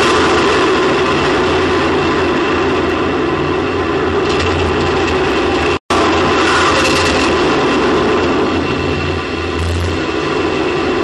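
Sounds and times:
rushing rumble of air: 0.0s - 11.0s.

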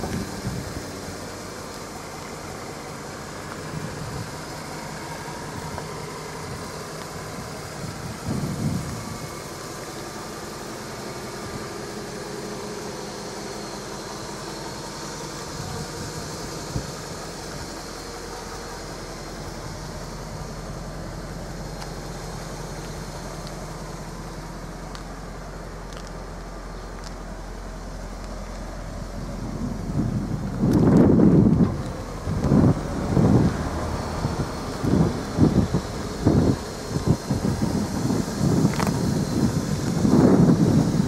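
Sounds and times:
car engine idling: 0.0s - 41.0s.

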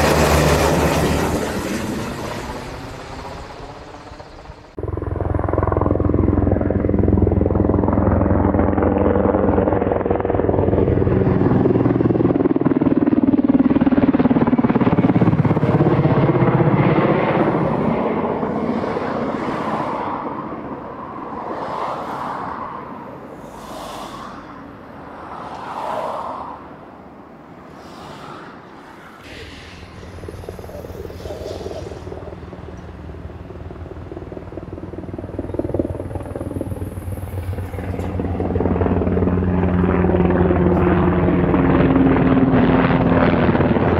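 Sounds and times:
helicopter rotor thumping: 0.0s - 17.3s, 29.2s - 43.9s.

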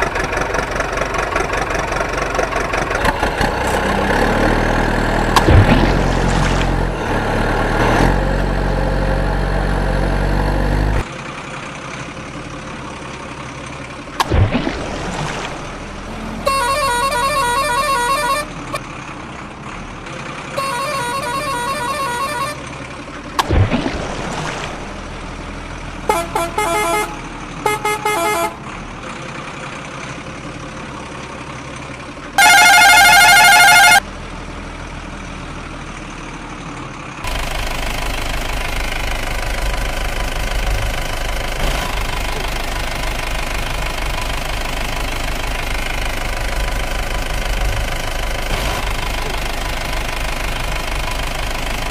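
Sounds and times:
truck splashing through water: 0.0s - 19.6s, 20.4s - 34.0s
truck engine running: 0.0s - 51.9s
vehicle horn tooting: 16.2s - 18.8s, 20.5s - 22.7s, 26.1s - 28.6s, 32.4s - 34.0s.

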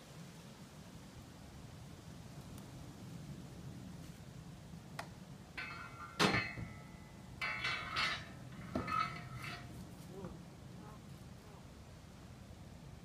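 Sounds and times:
metal harness fittings jingling: 5.6s - 9.8s.

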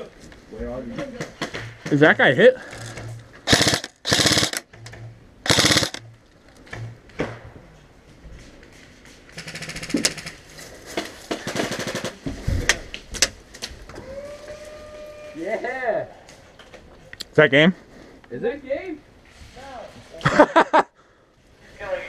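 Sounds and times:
airsoft rifles firing: 2.7s - 4.8s, 5.4s - 6.1s, 9.3s - 10.4s, 11.3s - 12.3s.

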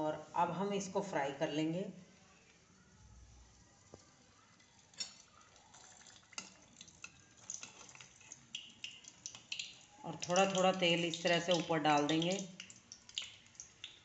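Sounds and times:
hot oil crackling and popping: 3.4s - 14.0s.

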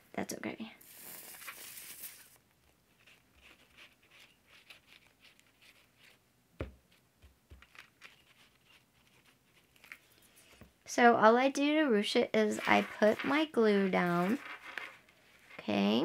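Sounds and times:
glue bottle hiss: 0.8s - 2.4s
scratchy rustles on paper: 0.8s - 6.2s, 7.6s - 10.6s, 12.4s - 16.0s.

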